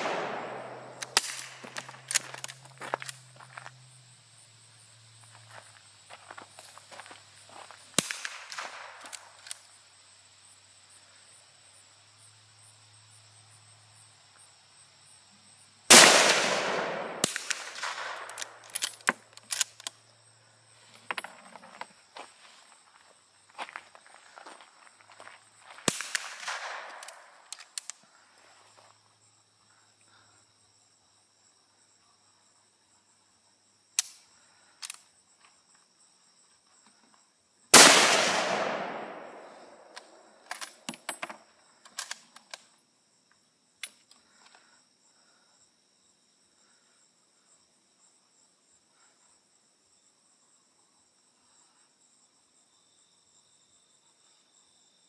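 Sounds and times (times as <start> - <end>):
rifle shots: 0.0 - 2.0, 8.0 - 9.1, 15.9 - 18.7, 25.9 - 27.4, 37.8 - 40.0
insects chirping: 0.0 - 55.0.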